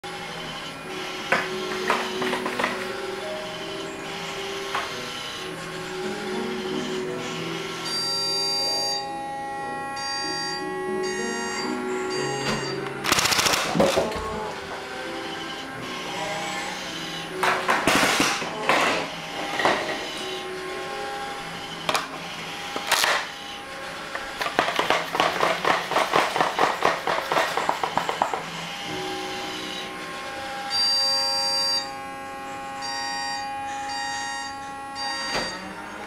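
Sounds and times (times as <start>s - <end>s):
higher electronic tone: 0.0s - 23.8s, 28.4s - 36.0s
steady electronic tones: 0.0s - 24.6s, 27.5s - 36.0s
fast run of clicks: 13.1s - 14.0s.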